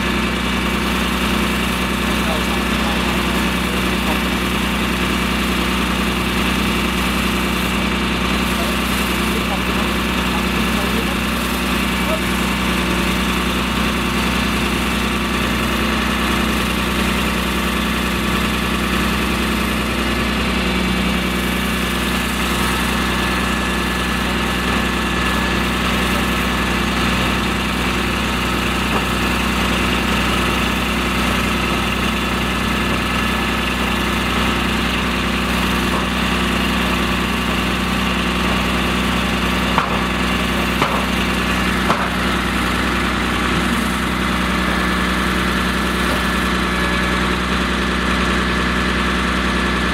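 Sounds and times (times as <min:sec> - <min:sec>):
fire engine motor running: 0:00.0 - 0:49.9.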